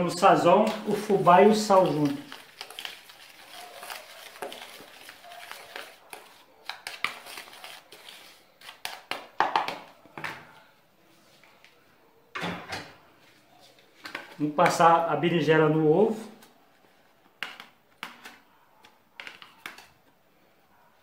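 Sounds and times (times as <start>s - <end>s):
cornmeal mixed by hand in bowl: 0.0s - 10.0s.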